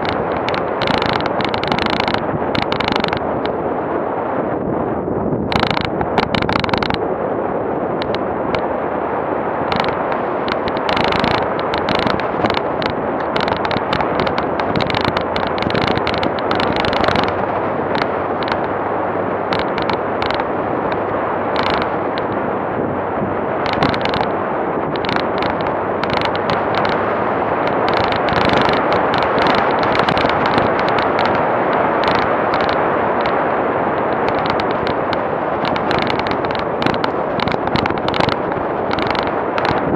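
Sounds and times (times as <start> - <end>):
crackling and knocking over bumps: 0.0 - 3.6, 5.4 - 7.0, 7.9 - 8.7, 9.6 - 39.9
vehicle engine driving: 9.6 - 39.9.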